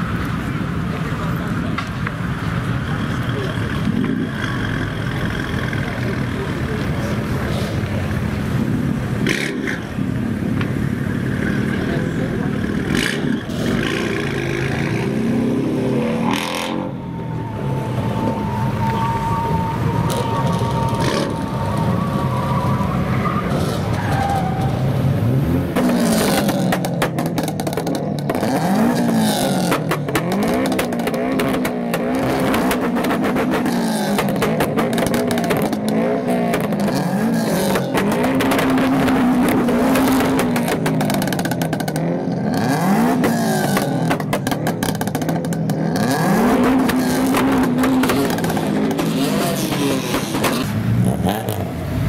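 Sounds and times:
car engine idling and revving: 0.0 - 52.0
exhaust pops: 43.1 - 50.8.

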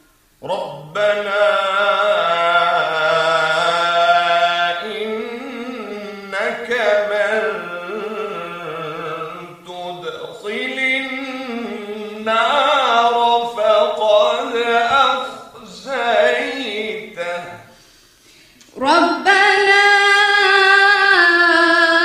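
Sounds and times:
person chanting melodically: 0.4 - 17.7, 18.7 - 22.0
short breaths: 17.6 - 18.7.

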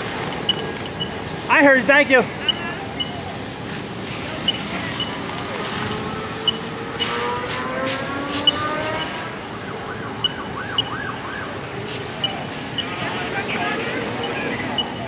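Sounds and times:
siren wailing and yelping: 2.3 - 3.4.

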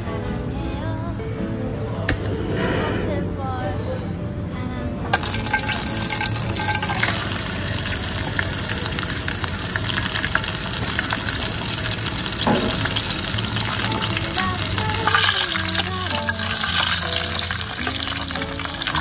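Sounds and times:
pork frying in hot oil: 5.2 - 19.0.

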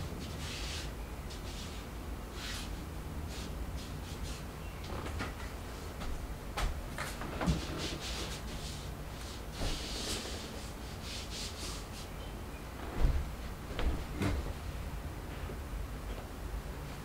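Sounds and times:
soft rubbing and scraping: 7.1 - 12.2
footsteps on floor: 12.8 - 14.6.

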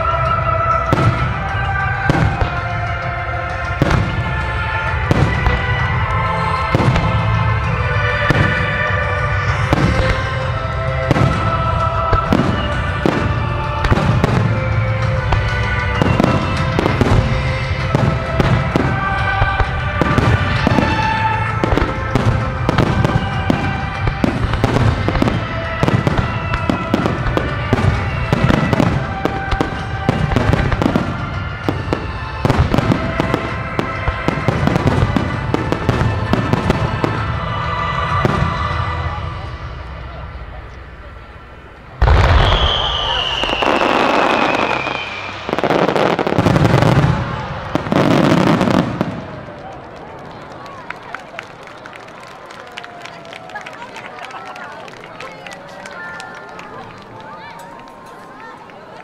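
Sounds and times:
music with long notes: 0.0 - 50.9
fireworks booming and crackling: 0.0 - 59.0.

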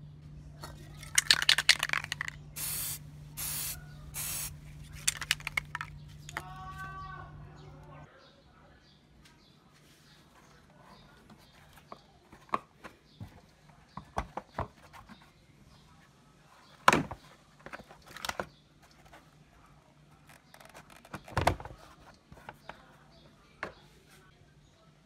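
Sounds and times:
plastic parts clicking and knocking: 0.6 - 2.4, 5.0 - 6.5.

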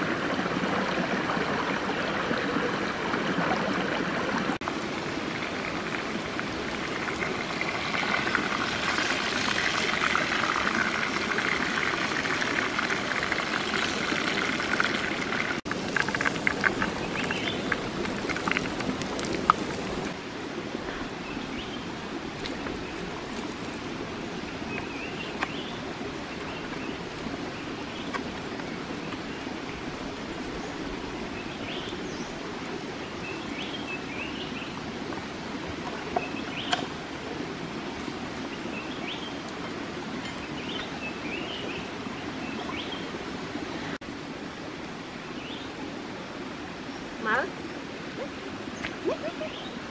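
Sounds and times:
stream water running: 0.0 - 49.9
sharp crackles: 15.7 - 20.2.

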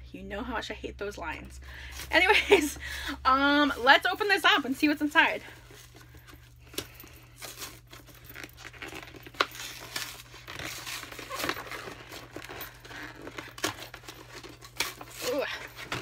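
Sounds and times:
packaging rustling and crinkling: 5.4 - 16.0.

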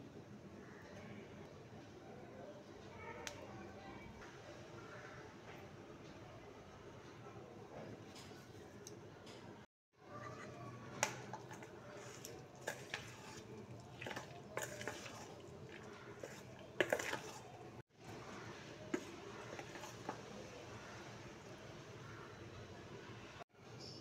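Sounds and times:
spoon stirring thick batter: 10.0 - 21.8.

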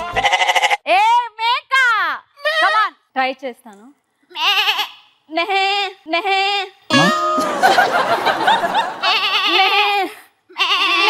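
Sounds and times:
woman imitating goat bleat: 9.0 - 11.0.

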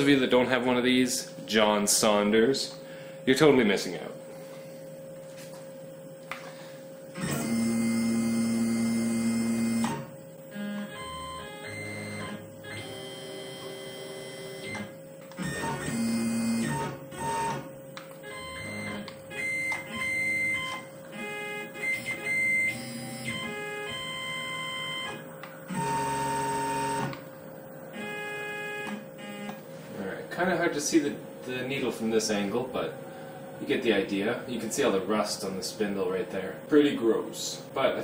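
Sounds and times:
steady hum: 0.0 - 38.0
mill motor whining: 6.3 - 36.5.

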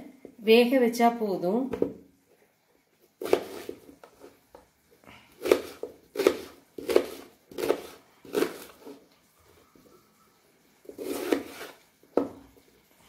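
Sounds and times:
knife cutting onto plastic board: 5.4 - 8.8, 11.0 - 11.8.

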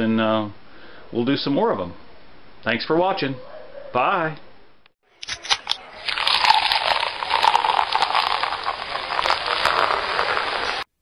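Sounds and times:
dense crackling noise: 5.6 - 11.0.

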